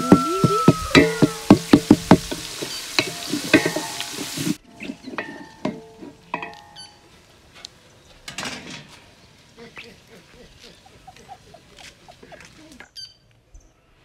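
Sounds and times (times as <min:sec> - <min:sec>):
onions sizzling in hot oil: 0:00.0 - 0:07.4
spoon scraping metal pot: 0:01.5 - 0:07.0.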